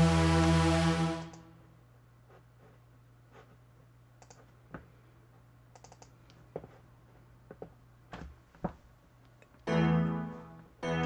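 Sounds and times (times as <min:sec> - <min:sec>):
low steady hum: 0:00.0 - 0:11.0
computer mouse clicks: 0:04.2 - 0:04.5, 0:05.7 - 0:06.4.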